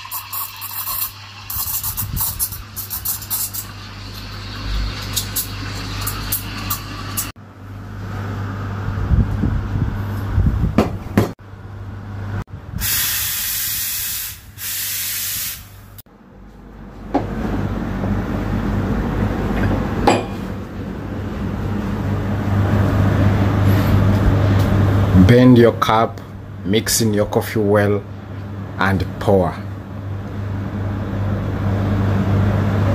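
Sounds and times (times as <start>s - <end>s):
espresso steam wand hissing: 0.0s - 4.3s
low hum and rushing noise: 7.2s - 13.4s, 15.6s - 32.9s.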